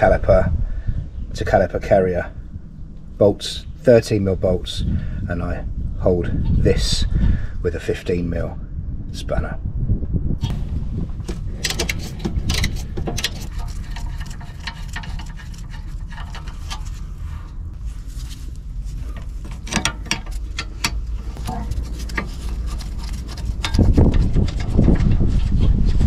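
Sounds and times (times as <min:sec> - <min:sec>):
steady low rumble: 0:00.0 - 0:26.0
hand tools clicking on metal: 0:11.3 - 0:17.1, 0:19.1 - 0:25.1.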